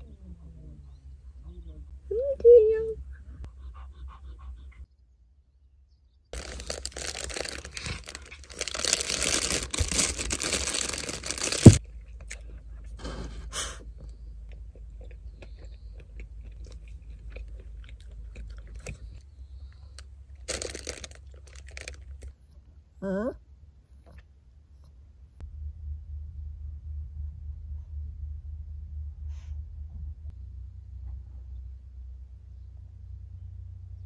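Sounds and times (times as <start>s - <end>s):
plastic wrapper crinkling: 6.4s - 11.8s, 20.4s - 22.3s
wrapper sharp crack: 6.4s - 11.8s, 20.4s - 22.3s
crunchy chewing of bread: 6.4s - 22.6s.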